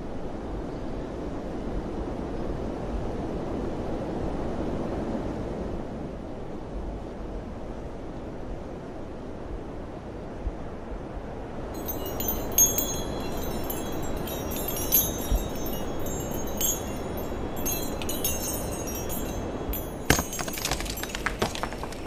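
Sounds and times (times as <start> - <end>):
metal chimes tinkling: 11.8 - 22.0.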